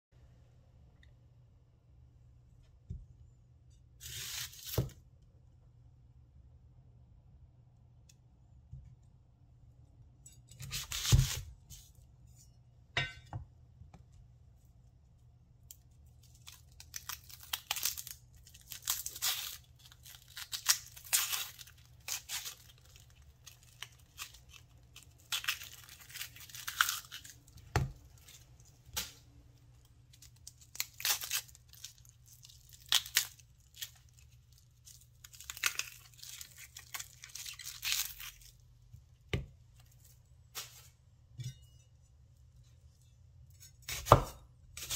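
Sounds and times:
onion skin crackling and tearing: 4.0s - 5.0s, 10.4s - 11.9s, 15.5s - 40.8s.

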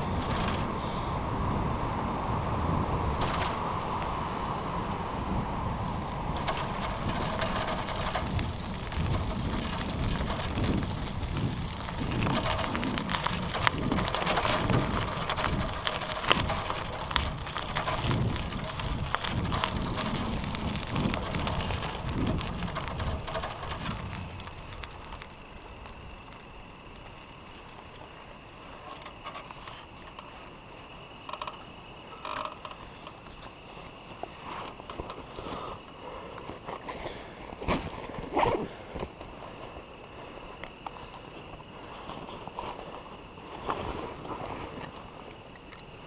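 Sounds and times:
bicycle clicks and rattles: 0.0s - 0.9s, 3.1s - 4.0s, 6.2s - 27.2s
wind rumbling on microphone: 0.0s - 27.6s.

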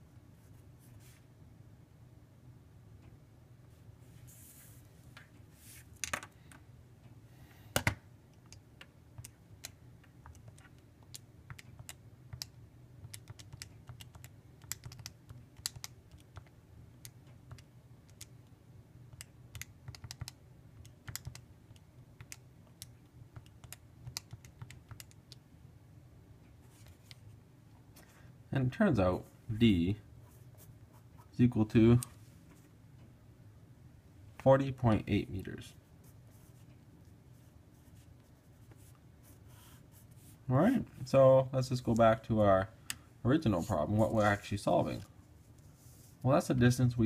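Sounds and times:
calculator buttons clicking: 19.2s - 25.4s.

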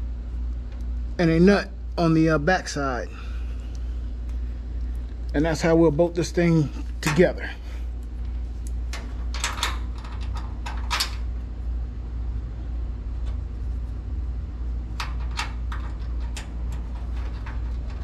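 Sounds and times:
steady low hum: 0.0s - 18.0s
metallic clicks of bolt and washers: 8.6s - 11.2s.

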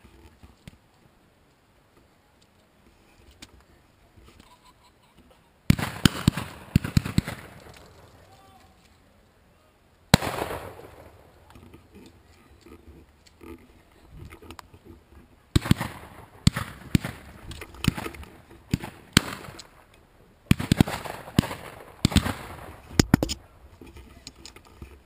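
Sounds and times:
shotgun bangs: 10.1s - 11.2s, 18.7s - 19.6s, 20.5s - 23.3s.

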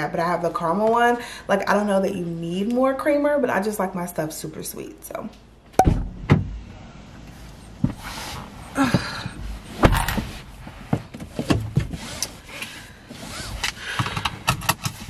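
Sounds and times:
thumps and clothing rustles: 7.7s - 12.7s
seatbelt being drawn: 8.0s - 8.8s, 11.9s - 14.0s.

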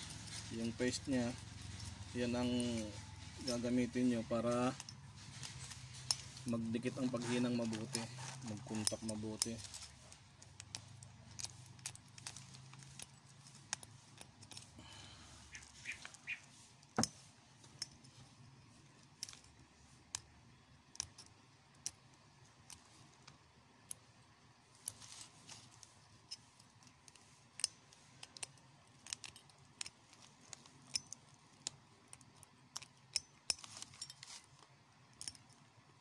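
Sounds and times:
metal scraping: 0.0s - 18.3s.

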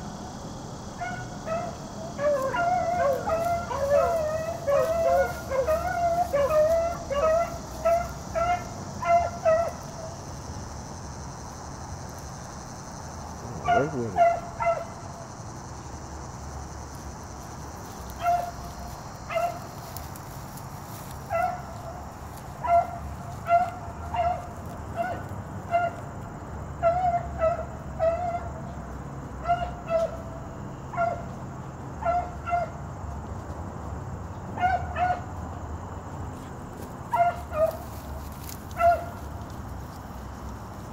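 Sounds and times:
hounds barking: 0.9s - 10.2s, 13.6s - 15.2s, 18.0s - 26.0s, 26.8s - 28.6s, 29.4s - 30.2s, 30.9s - 31.4s, 32.0s - 32.8s, 34.6s - 35.3s, 37.1s - 39.5s.

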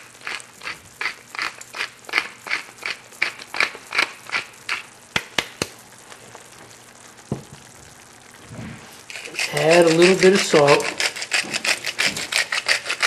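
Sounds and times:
pepper mill grinding: 0.0s - 4.9s, 9.1s - 13.0s
knock: 7.3s - 7.6s.

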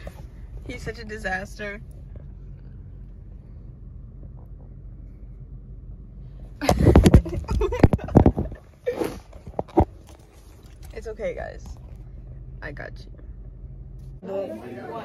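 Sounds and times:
low car rumble: 0.0s - 15.0s
phone handling bumps and rubbing: 6.6s - 10.3s.

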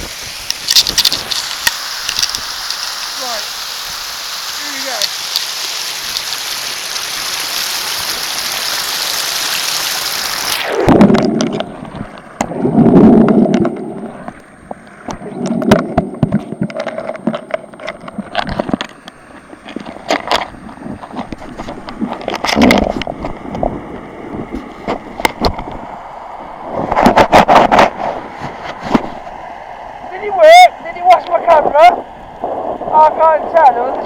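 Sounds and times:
stream water rushing: 0.0s - 34.0s
underwater gurgling: 0.0s - 34.0s.

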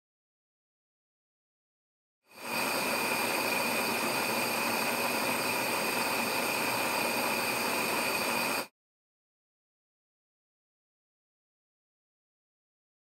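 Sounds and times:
gas pilot flame hissing: 2.3s - 8.7s.

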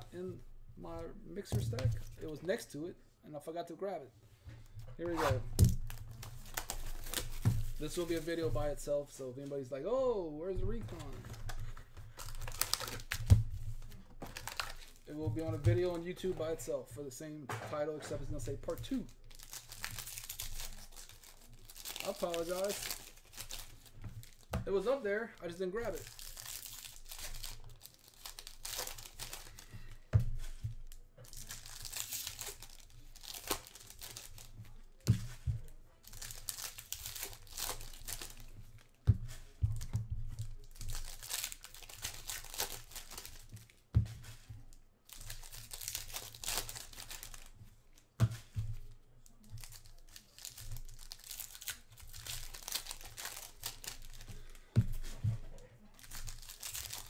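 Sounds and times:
foil wrappers tearing and crinkling: 5.1s - 8.7s, 11.0s - 13.3s, 14.2s - 15.1s, 18.3s - 29.9s, 31.2s - 35.1s, 36.0s - 38.9s, 40.4s - 43.8s, 45.1s - 47.5s, 49.6s - 55.1s, 56.0s - 57.0s.

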